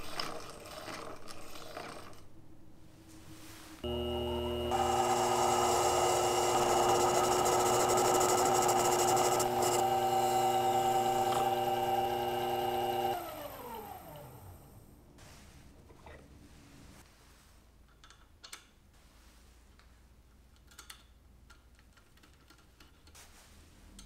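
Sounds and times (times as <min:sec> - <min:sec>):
tool cutting metal: 0:03.8 - 0:13.8
lathe motor whine: 0:03.8 - 0:14.6.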